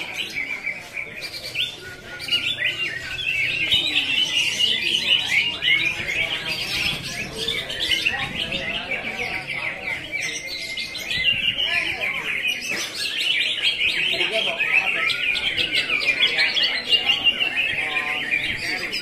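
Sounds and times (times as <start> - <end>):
caged birds singing: 0.0 - 19.0.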